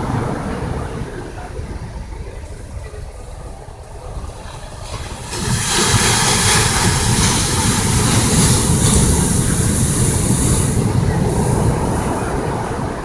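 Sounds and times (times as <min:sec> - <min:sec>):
rush of white water: 0:00.0 - 0:13.0
wave breaking on shore: 0:00.0 - 0:13.0.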